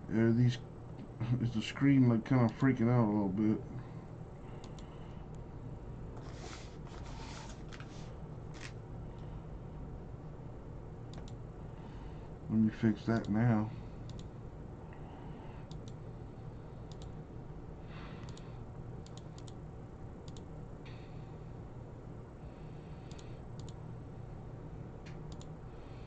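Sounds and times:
steady low hum: 0:00.0 - 0:26.0
computer mouse clicks: 0:04.6 - 0:04.9, 0:11.1 - 0:11.4, 0:14.1 - 0:14.3, 0:15.7 - 0:16.0, 0:16.9 - 0:17.2, 0:18.2 - 0:19.6, 0:20.2 - 0:20.5, 0:23.1 - 0:23.8, 0:25.1 - 0:25.5.

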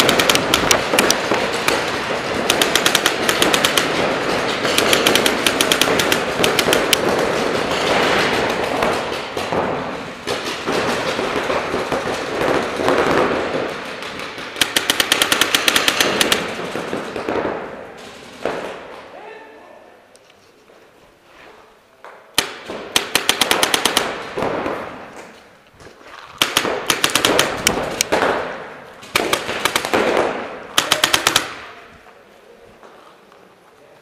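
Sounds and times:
paintball markers firing: 0:00.0 - 0:07.8, 0:14.0 - 0:17.6, 0:22.4 - 0:25.2, 0:26.2 - 0:28.4, 0:29.1 - 0:31.9.

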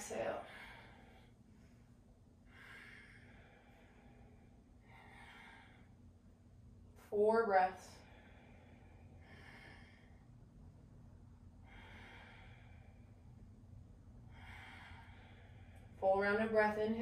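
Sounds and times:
person breathing slowly: 0:00.4 - 0:06.2, 0:07.9 - 0:10.6, 0:11.5 - 0:16.0.

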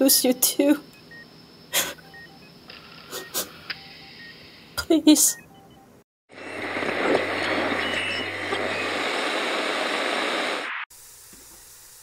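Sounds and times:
low hum: 0:06.3 - 0:10.7.

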